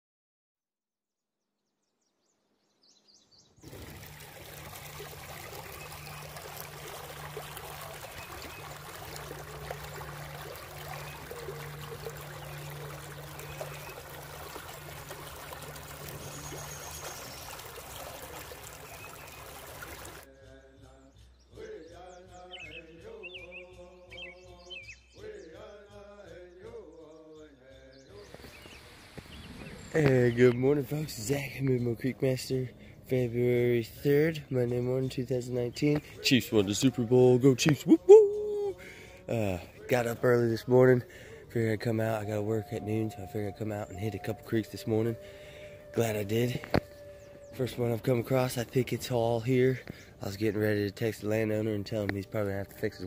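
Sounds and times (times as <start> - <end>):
creek water rushing over rocks: 3.6 - 20.3, 28.2 - 31.8
wavering pitched sound: 41.8 - 48.3.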